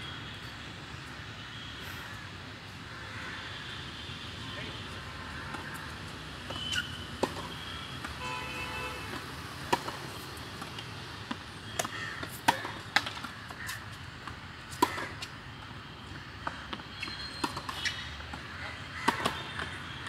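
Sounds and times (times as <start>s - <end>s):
racket hitting tennis balls: 9.1s - 13.9s, 14.7s - 15.3s, 19.1s - 19.8s
tennis balls bouncing on hard court: 9.1s - 15.3s, 15.9s - 20.0s.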